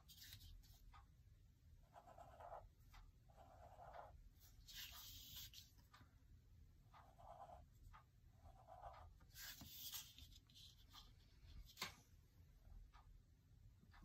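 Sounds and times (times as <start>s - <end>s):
pen scratching on paper: 1.8s - 2.7s, 3.3s - 5.7s, 7.0s - 7.7s, 8.3s - 10.8s.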